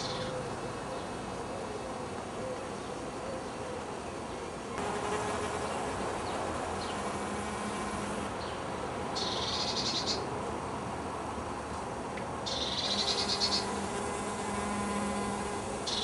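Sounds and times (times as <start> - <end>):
outdoor background hiss: 0.0 - 16.0
insect chirping: 12.5 - 16.0.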